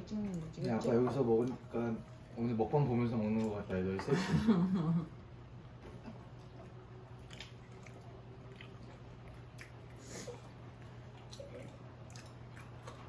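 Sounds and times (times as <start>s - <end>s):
low steady hum: 0.0s - 13.0s
quiet chewing: 5.6s - 13.0s.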